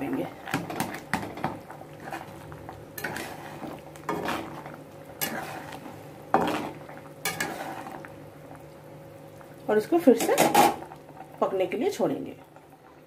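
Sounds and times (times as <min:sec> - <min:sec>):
chutney boiling in a wok: 0:00.0 - 0:13.0
spatula scraping and knocking pan: 0:00.5 - 0:08.0.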